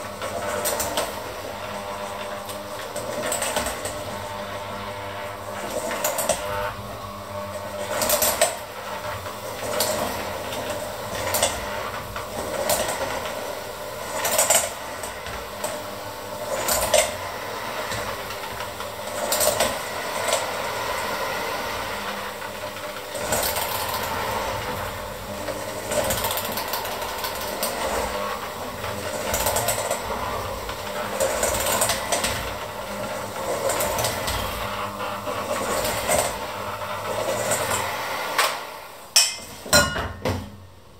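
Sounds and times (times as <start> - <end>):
electric mixer running: 0.0 - 40.4
beaters knocking steel bowl: 39.2 - 40.4.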